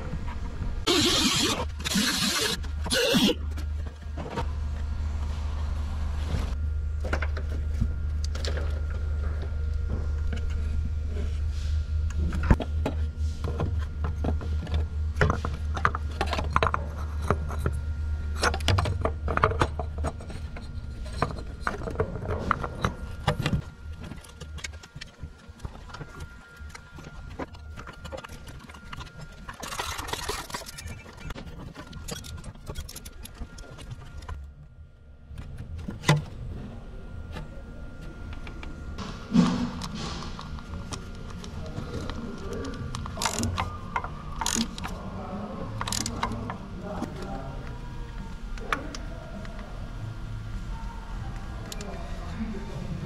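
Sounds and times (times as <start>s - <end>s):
steady low hum: 0.0s - 53.0s
metal parts clicking and knocking: 26.6s - 34.5s, 42.0s - 45.0s, 45.8s - 46.4s.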